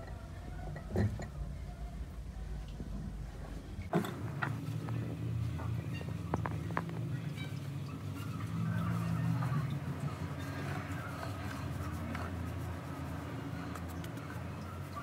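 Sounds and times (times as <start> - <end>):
steady low hum: 0.0 - 15.0
fingers rustling through dough: 8.1 - 15.0.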